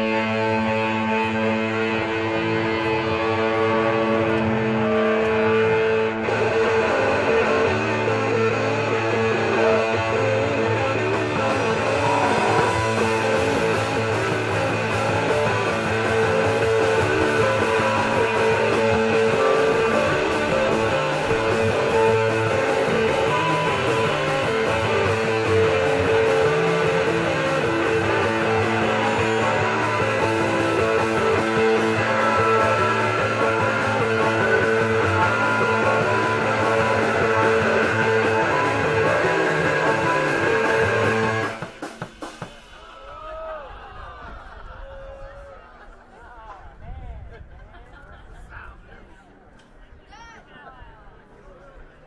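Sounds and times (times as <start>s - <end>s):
live rock band: 0.0s - 42.8s.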